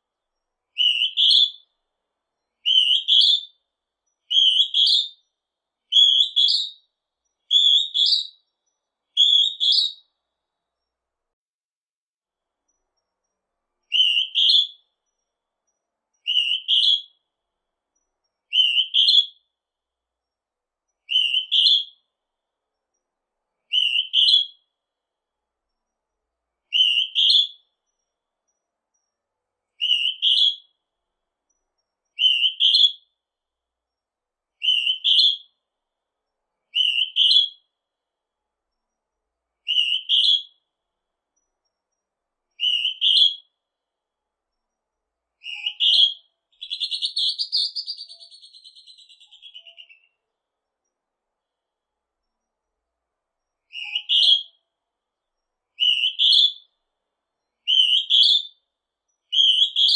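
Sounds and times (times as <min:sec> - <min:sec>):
two-note bird whistle: 0:46.9 - 0:50.1.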